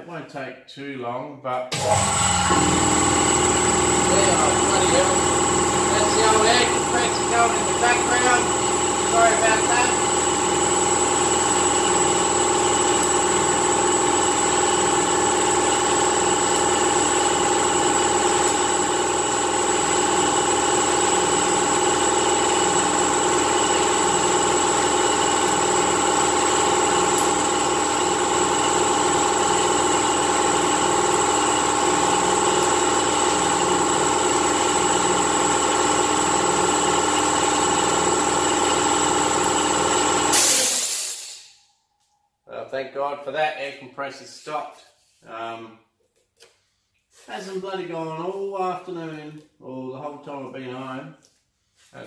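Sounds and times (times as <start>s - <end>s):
air compressor running: 1.7s - 41.6s.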